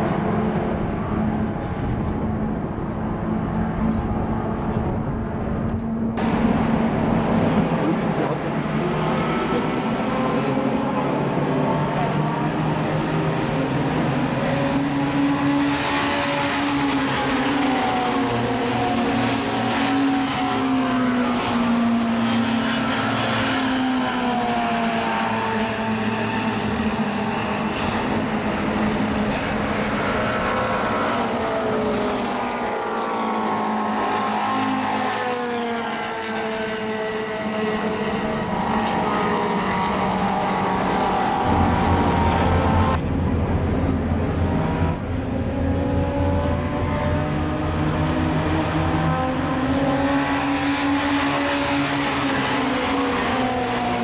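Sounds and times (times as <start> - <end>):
racing car engines at high revs: 0.0 - 54.0.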